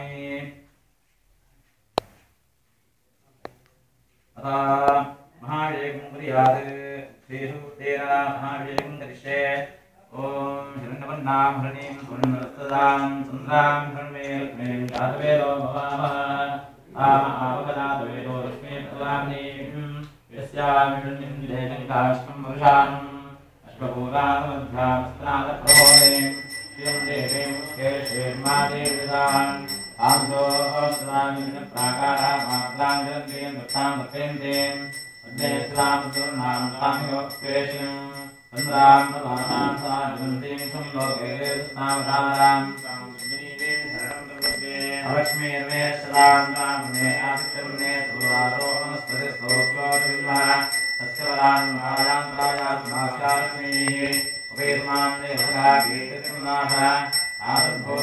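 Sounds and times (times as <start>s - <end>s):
priest chanting: 4.4s - 58.0s
hand bell ringing: 25.7s - 58.0s.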